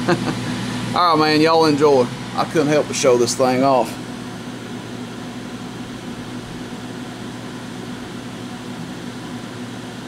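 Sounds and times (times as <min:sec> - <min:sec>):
cooling fans running: 0:00.0 - 0:10.0.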